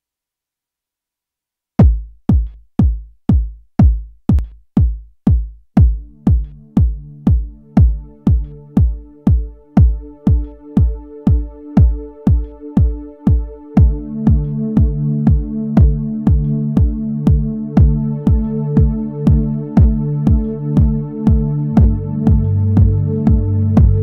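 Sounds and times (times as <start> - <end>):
drum machine kick drum: 1.8 - 24.0
held keyboard chord: 6.0 - 24.0.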